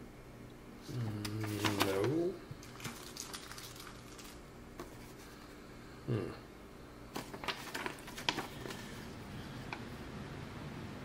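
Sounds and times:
person murmuring: 0.8s - 1.8s, 6.0s - 6.5s
paper rustling and crackling: 1.2s - 5.4s, 7.1s - 9.1s.

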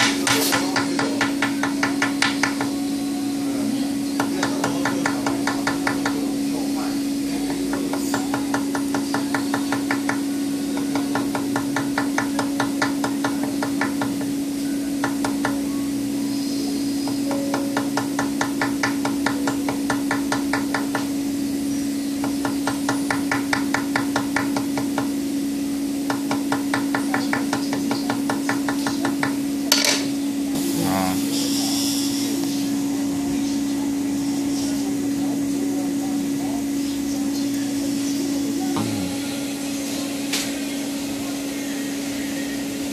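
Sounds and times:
hammer tapping on wire: 0.0s - 2.7s, 7.5s - 10.2s.

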